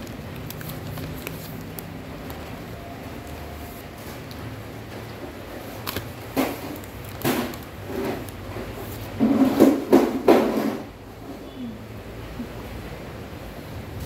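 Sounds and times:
paper bag crinkling: 0.0s - 4.6s.

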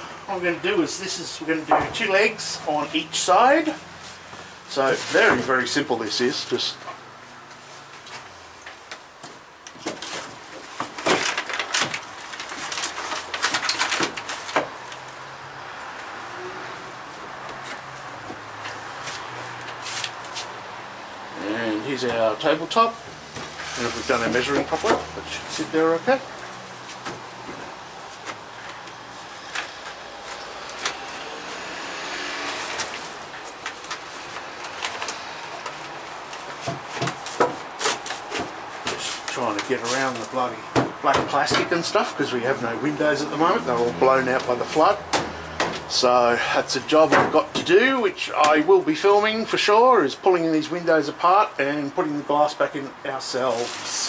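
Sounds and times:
road vehicle passing: 12.2s - 48.1s
wooden knocks and scrapes: 32.4s - 39.8s.

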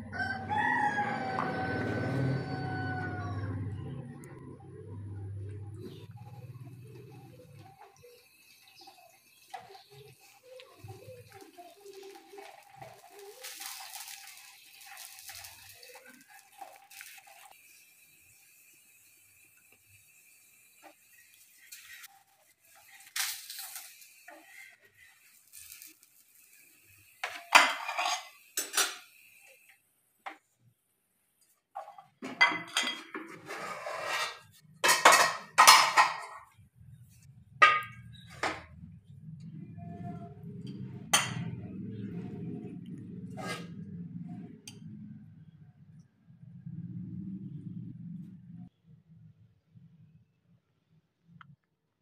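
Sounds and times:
metal tongs scraping on pan: 11.2s - 17.5s, 21.5s - 22.1s, 22.7s - 26.2s, 27.2s - 29.1s, 31.8s - 36.4s, 43.3s - 43.9s
metal pot lid and ladle clattering: 27.2s - 29.0s, 31.9s - 33.4s, 34.2s - 36.4s, 37.6s - 38.7s.

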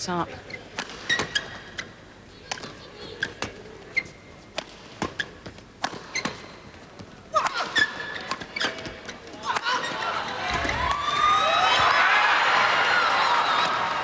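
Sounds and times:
shoes squeaking on court: 0.3s - 10.8s
racquets hitting shuttlecock: 0.7s - 6.6s, 7.3s - 10.0s.

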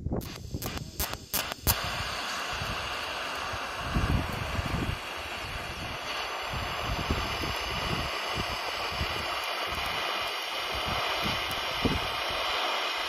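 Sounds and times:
welding arc hissing: 0.0s - 13.0s.

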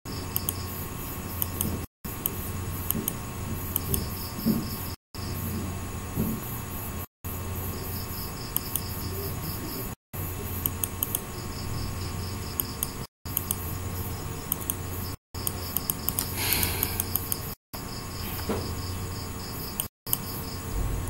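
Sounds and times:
mouse scroll wheel clicking: 0.3s - 0.7s, 1.4s - 4.2s, 8.5s - 9.0s, 10.6s - 11.3s, 12.6s - 13.6s, 14.5s - 14.8s, 15.4s - 17.6s.

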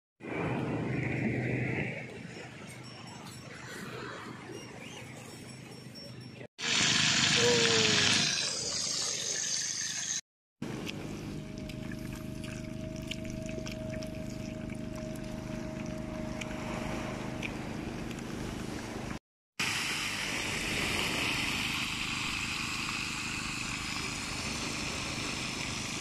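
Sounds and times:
low hum: 10.6s - 19.2s.

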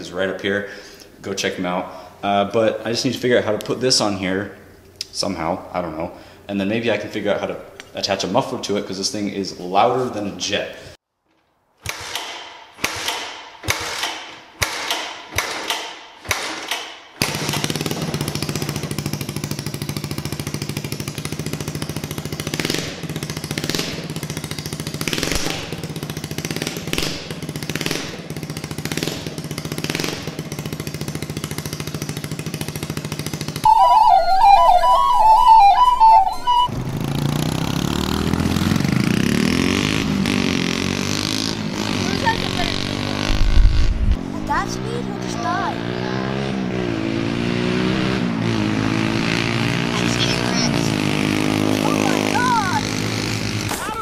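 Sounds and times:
engine being kick-started: 11.8s - 25.9s
go-kart driving by: 17.2s - 54.0s
motorcycle engine pulsing exhaust: 17.3s - 53.8s.

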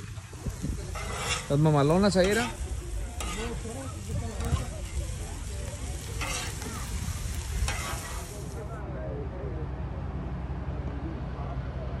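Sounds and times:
meat and onions sizzling: 0.0s - 8.6s.

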